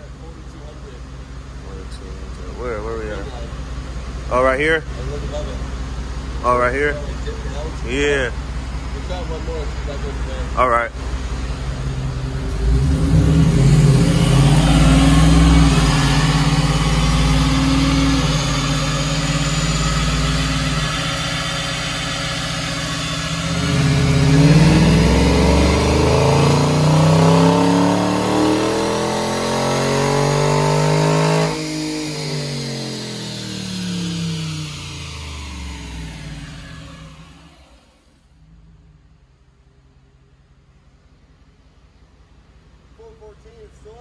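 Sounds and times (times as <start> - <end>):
car engine revving at full throttle: 9.0 - 39.0
dyno rollers winding down: 11.8 - 38.1.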